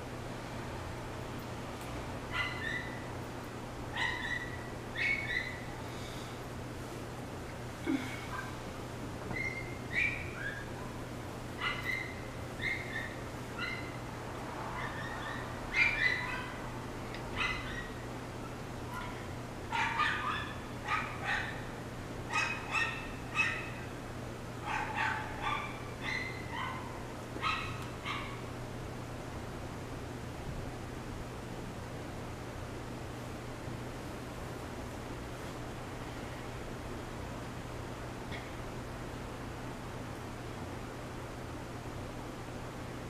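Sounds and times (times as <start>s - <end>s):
steady low hum: 0.0s - 43.0s
dog yelping high-pitched: 2.3s - 3.1s, 3.9s - 5.7s, 9.3s - 10.8s, 11.6s - 14.0s, 14.8s - 16.6s, 17.4s - 18.1s, 19.0s - 21.7s, 22.3s - 23.8s, 24.6s - 28.4s.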